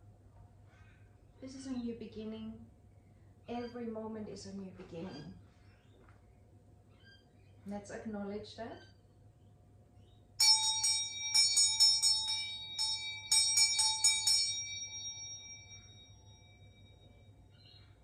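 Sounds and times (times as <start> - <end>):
hand bell ringing: 10.4 - 17.2.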